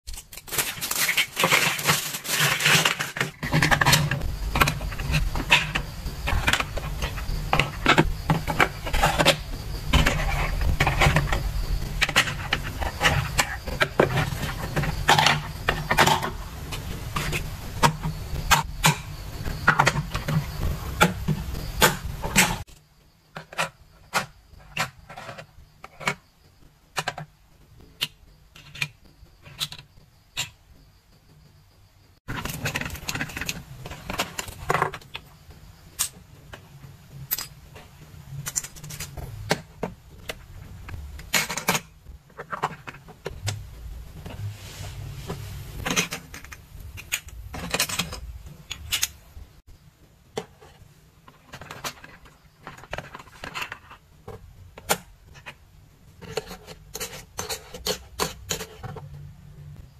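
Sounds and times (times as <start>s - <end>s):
plastic bag crinkling: 0.1s - 3.4s
plastic parts clicking: 45.8s - 49.2s.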